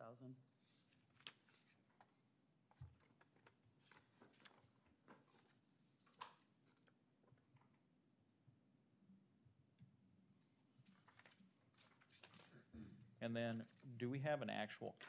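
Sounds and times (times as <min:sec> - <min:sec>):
faint clicks and rustles: 0:00.7 - 0:07.8, 0:10.8 - 0:12.7.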